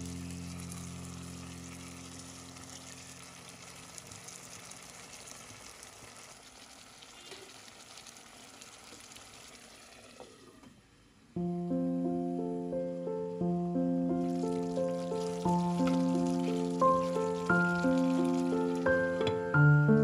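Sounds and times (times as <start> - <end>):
chicken sizzling in oil: 0.0 - 10.6, 14.1 - 19.3
background music: 11.4 - 20.0
wooden spatula stirring: 14.4 - 18.8.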